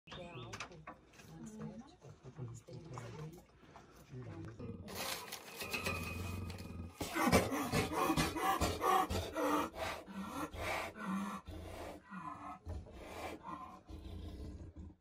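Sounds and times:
jaguar snarling and growling: 5.9 - 15.0.

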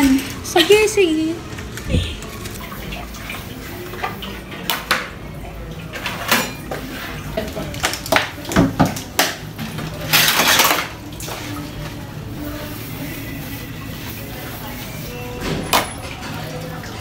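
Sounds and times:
running water: 0.0 - 17.0
dishes and cutlery clattering: 5.8 - 11.5.

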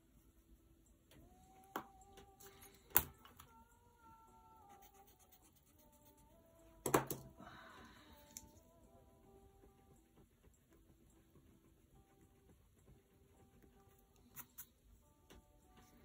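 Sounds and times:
pencil clicks and taps: 1.1 - 3.5, 6.8 - 7.3.

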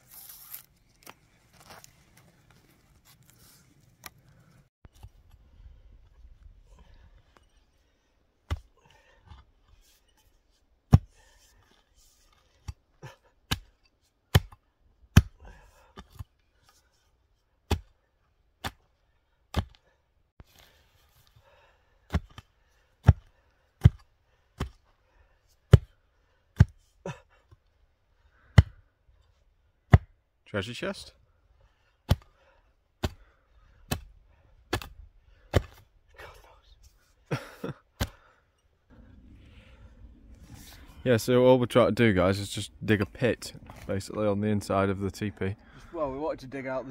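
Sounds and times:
mattock chopping into soil: 19.5 - 19.8, 32.1 - 32.3, 33.0 - 33.3, 34.7 - 35.9.

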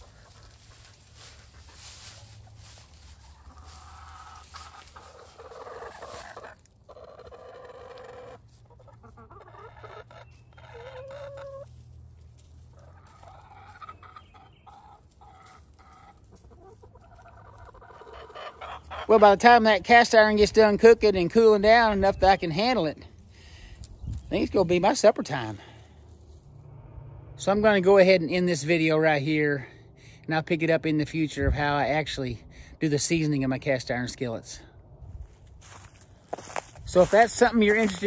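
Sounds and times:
drawn-out chicken calls: 0.0 - 20.4, 35.2 - 38.0
chickens clucking: 0.0 - 20.8, 35.6 - 38.0.

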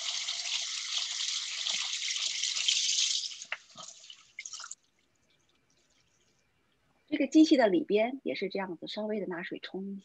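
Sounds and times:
tap water running: 0.0 - 4.8
water drips and splashes: 0.0 - 6.4.

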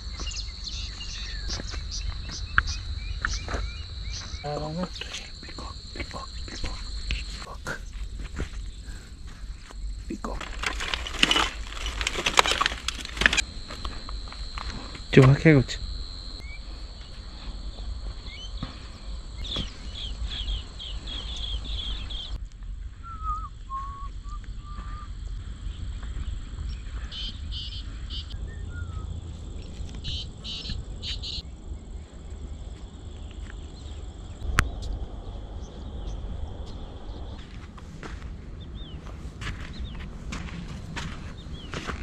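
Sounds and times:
insects trilling: 0.0 - 42.0
short pulsed insect calls: 0.0 - 42.0
wind on microphone: 34.4 - 42.0.

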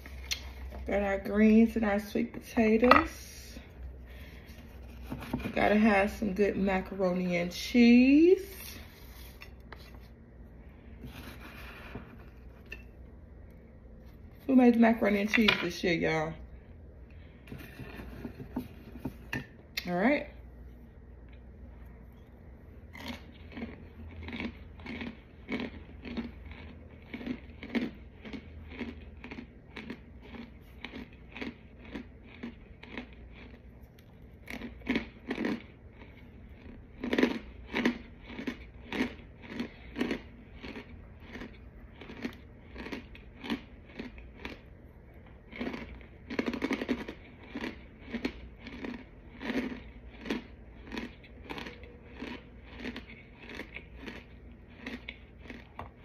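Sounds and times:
chewing crunchy chunks: 22.6 - 56.0.

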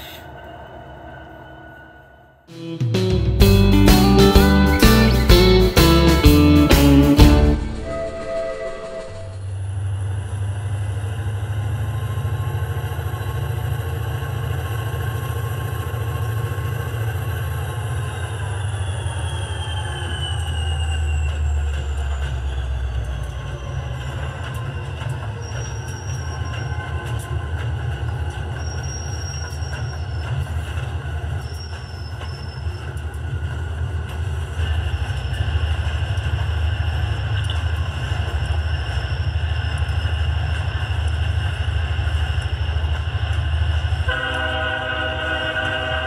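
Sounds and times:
high wheel squeal: 17.6 - 27.5, 28.3 - 33.2.

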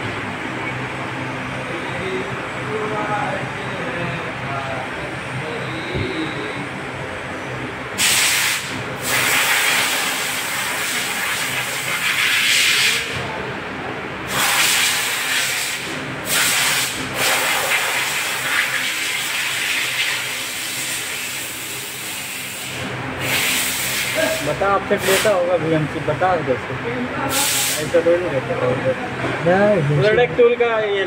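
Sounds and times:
low machine hum: 0.0 - 8.0
compressed air hissing: 8.0 - 13.2, 14.3 - 25.4, 27.3 - 28.0.

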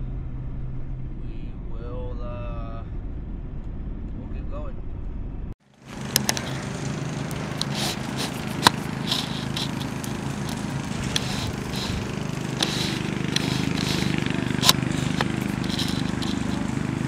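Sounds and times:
steady low hum: 0.0 - 17.0
twig fire crackling and popping: 5.7 - 17.0.

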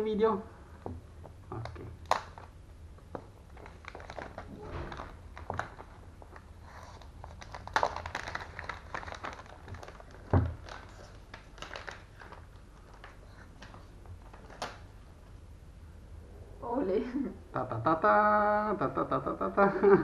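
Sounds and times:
plastic bag crinkling: 1.6 - 14.9.

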